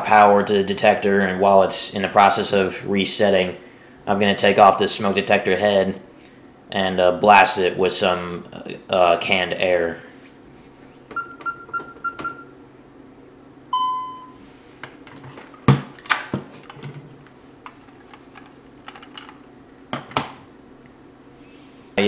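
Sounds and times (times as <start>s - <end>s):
keypad beeps: 11.1s - 12.5s, 13.8s - 14.4s
long low beep: 13.7s - 14.4s.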